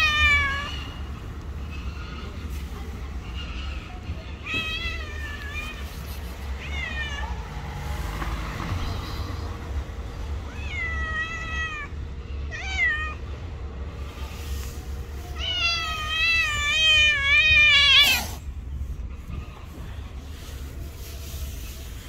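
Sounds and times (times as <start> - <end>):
cats meowing: 0.0 - 1.2, 3.4 - 7.6, 10.3 - 13.4, 15.2 - 19.9.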